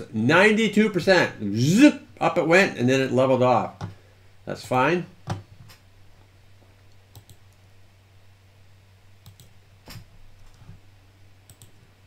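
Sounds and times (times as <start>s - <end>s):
low steady hum: 0.0s - 12.0s
computer mouse clicking: 6.9s - 7.6s, 9.2s - 10.8s, 11.4s - 11.9s.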